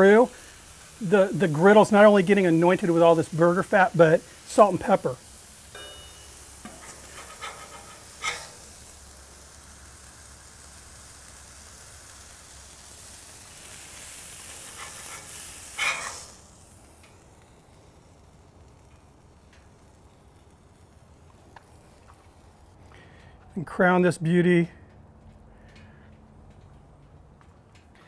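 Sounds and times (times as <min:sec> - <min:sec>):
burger patties sizzling on griddle: 0:00.0 - 0:23.8
spatula scraping griddle: 0:00.8 - 0:09.0, 0:13.6 - 0:16.4.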